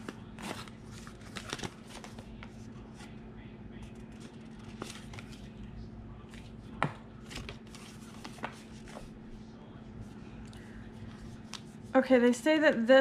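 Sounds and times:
packaging clicks and rustles: 0.0 - 2.5
faint steady hum: 0.0 - 13.0.

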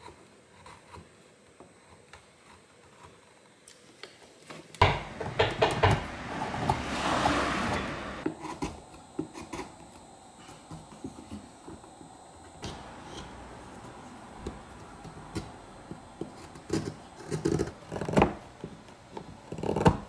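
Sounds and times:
chisel cutting wood: 4.8 - 9.9, 12.6 - 20.0.

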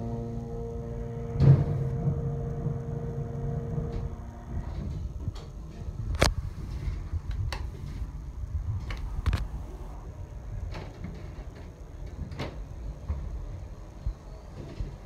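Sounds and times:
elevator car stopping thud: 0.0 - 5.1
elevator doors sliding: 0.0 - 8.2.

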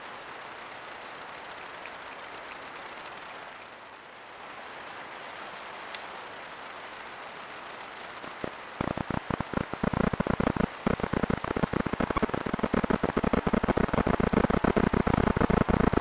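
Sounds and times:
faint high whine: 0.0 - 16.0
audio crackling and popping: 8.2 - 16.0.

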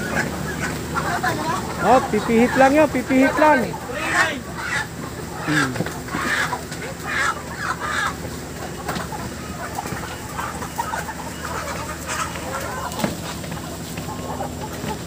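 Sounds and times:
chickens clucking and squawking: 0.0 - 15.0
steady low hum: 0.0 - 15.0.

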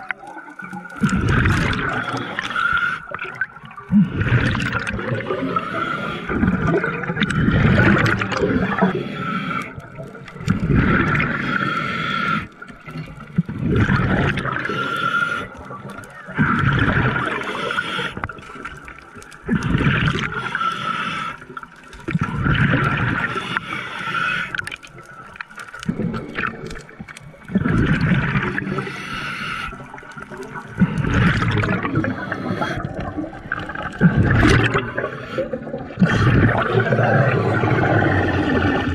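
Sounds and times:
exhale bubbles gurgling underwater: 0.0 - 38.9
diver inhaling through regulator: 1.8 - 3.2, 3.9 - 9.8, 11.0 - 12.6, 14.5 - 15.7, 17.2 - 18.4, 19.9 - 21.6, 23.2 - 24.6, 28.5 - 33.4.

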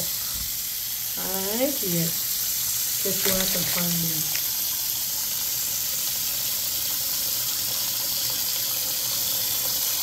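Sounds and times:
vegetables being washed: 0.0 - 10.0
tap running into sink: 3.1 - 4.6.

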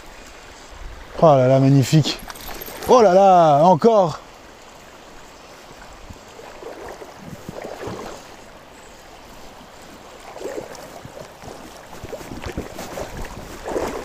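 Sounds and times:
river water splashing: 0.0 - 14.0.

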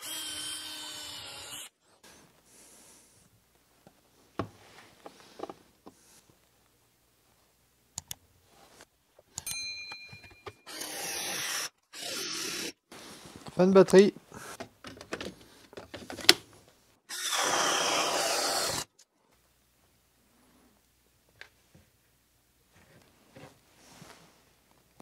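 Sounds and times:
cordless drill whining: 0.0 - 1.8, 10.7 - 12.8, 17.1 - 18.9
circle cutter cutting chipboard: 17.1 - 18.9.

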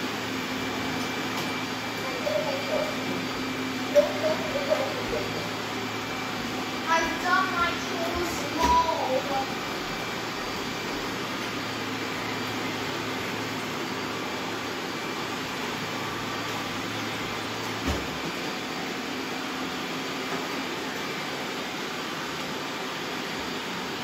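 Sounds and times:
robot vacuum cleaners whirring: 0.0 - 24.0.

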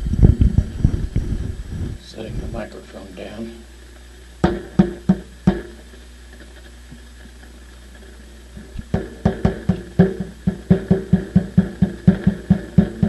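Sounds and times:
low steady hum: 0.0 - 13.0
knocks with low ring: 4.4 - 5.8, 8.9 - 13.0
microphone thump: 4.4 - 5.8, 8.8 - 13.0.

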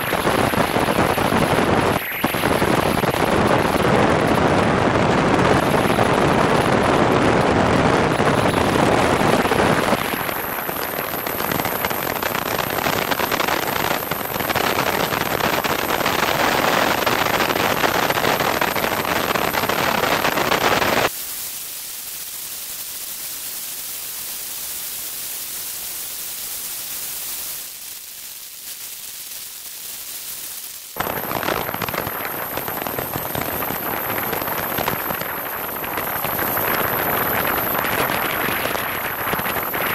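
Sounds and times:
wind buffeting microphone: 0.0 - 15.6, 31.0 - 39.9.

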